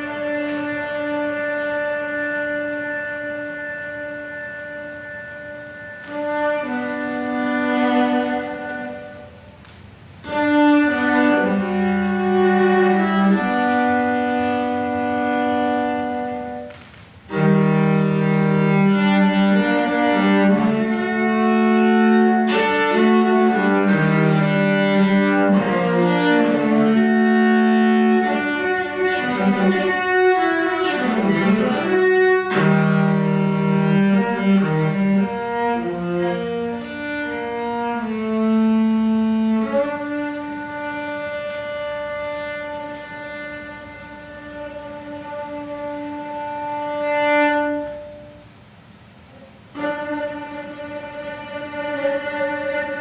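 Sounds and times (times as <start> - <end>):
bowed viola notes: 0.0 - 53.0.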